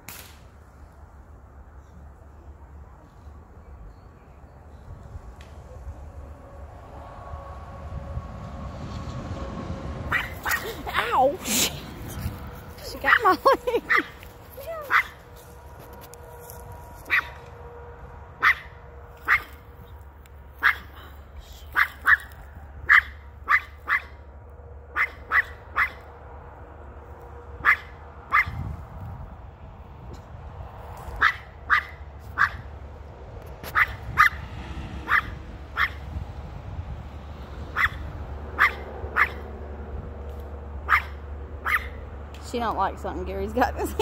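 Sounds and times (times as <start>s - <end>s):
small dog barking: 10.1s - 11.1s, 13.0s - 15.2s, 17.1s - 17.4s, 18.4s - 19.6s, 20.6s - 20.9s, 21.7s - 24.2s, 24.9s - 26.0s, 27.6s - 28.6s, 31.2s - 32.7s, 33.7s - 34.4s, 35.0s - 36.0s, 37.7s - 39.5s, 40.8s - 42.0s.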